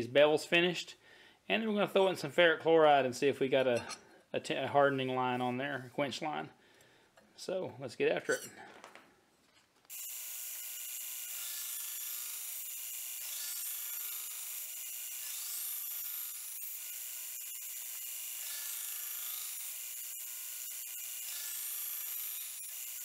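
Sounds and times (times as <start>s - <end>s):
belt grinder grinding blade: 9.9s - 23.0s.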